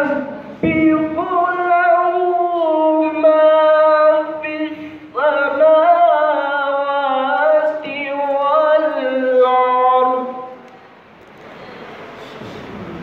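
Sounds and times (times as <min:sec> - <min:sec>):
boy chanting through microphone: 0:00.0 - 0:10.7.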